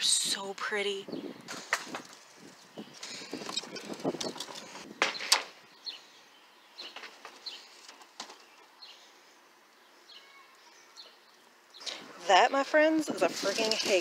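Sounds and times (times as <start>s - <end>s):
faint bird chirps: 2.7s - 12.1s.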